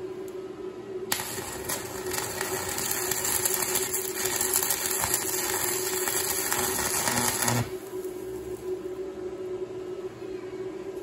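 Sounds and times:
arc welding crackling hiss: 0:01.1 - 0:08.8.

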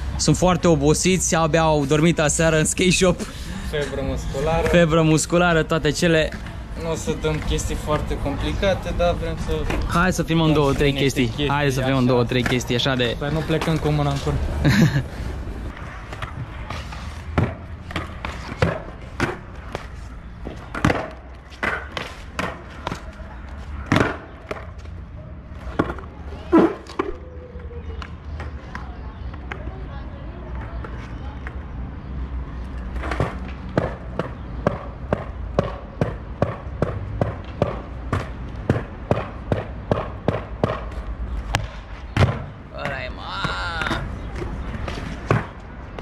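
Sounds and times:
skateboard clacking on stone: 0:16.1 - 0:23.2
skateboard wheels rolling: 0:43.8 - 0:46.0.

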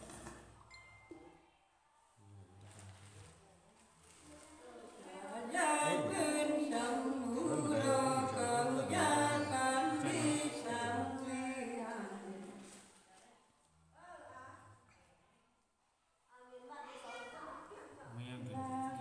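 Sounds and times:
woman singing unaccompanied: 0:05.0 - 0:12.8, 0:18.1 - 0:19.0.

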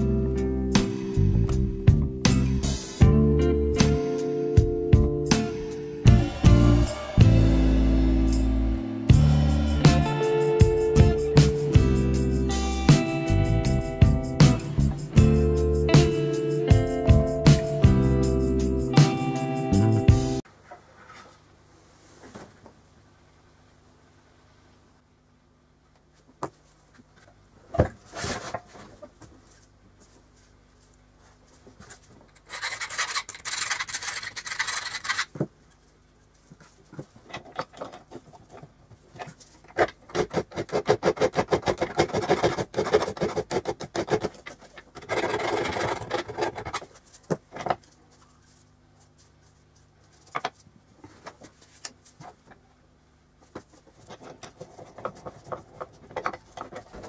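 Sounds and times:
hand file rasping on metal: 0:40.1 - 0:46.6.

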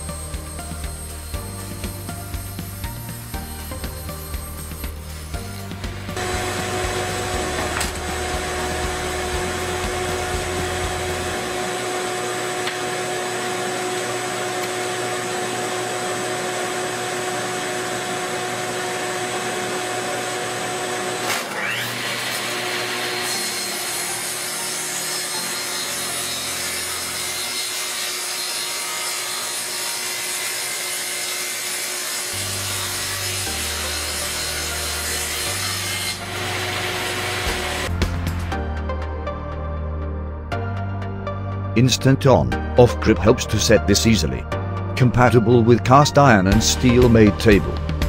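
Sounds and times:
table saw whining: 0:00.0 - 0:38.7
saw cutting board hiss: 0:00.6 - 0:08.9.

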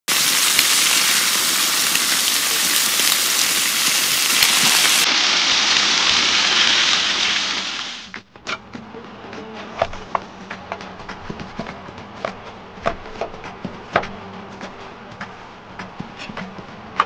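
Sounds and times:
food sizzling: 0:00.1 - 0:08.2.

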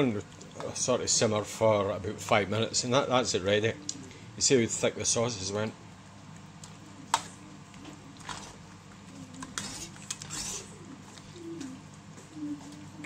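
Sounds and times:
metal spoon scraping a pot: 0:09.4 - 0:10.7.

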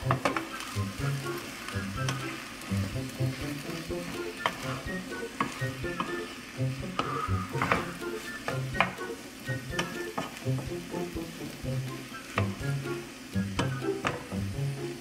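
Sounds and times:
spatula stirring and scraping: 0:00.0 - 0:09.0
rice sizzling in a wok: 0:00.0 - 0:15.0
spatula knocking against pan: 0:05.4 - 0:06.2, 0:06.9 - 0:09.0.

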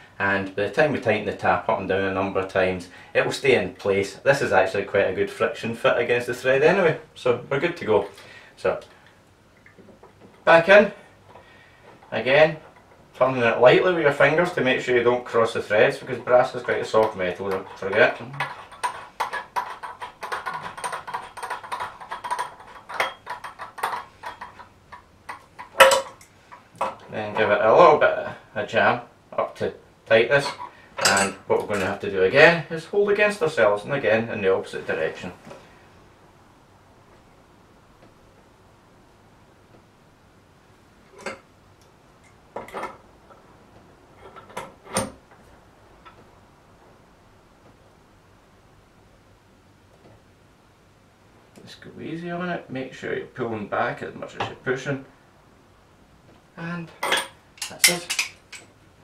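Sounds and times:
metal tools clicking on tap: 0:57.0 - 0:58.7.

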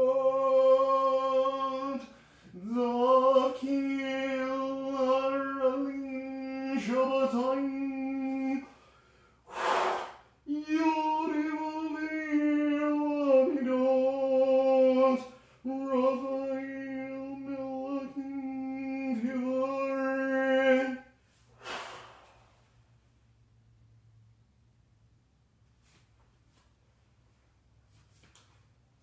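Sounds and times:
breath drawn in: 0:08.8 - 0:10.3, 0:21.4 - 0:22.6.

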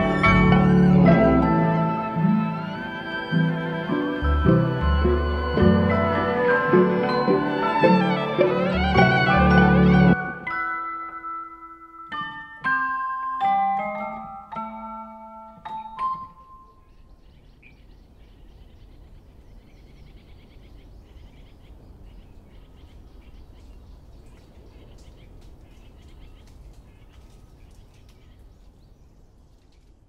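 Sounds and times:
birds chirping: 0:00.0 - 0:30.0.

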